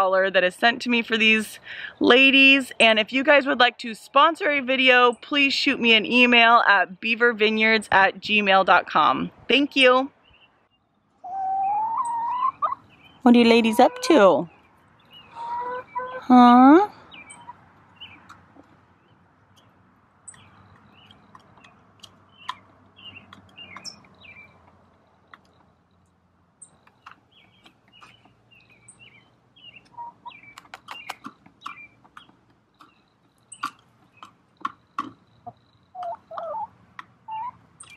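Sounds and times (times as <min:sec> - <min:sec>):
hens chirping: 0:09.8 - 0:37.9
hens clucking: 0:11.2 - 0:14.5, 0:15.2 - 0:16.3, 0:29.8 - 0:33.0, 0:33.6 - 0:37.9.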